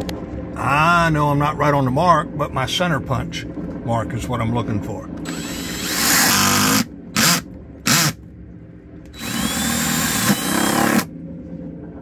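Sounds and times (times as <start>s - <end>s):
cordless drill whining: 5.2s - 8.2s, 9.1s - 11.1s.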